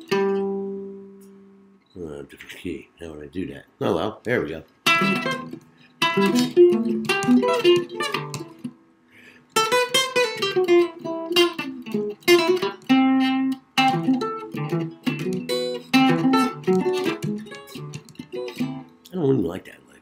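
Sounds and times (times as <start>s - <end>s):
jazz guitar chords: 0.0s - 1.8s, 4.8s - 8.8s, 9.5s - 19.1s.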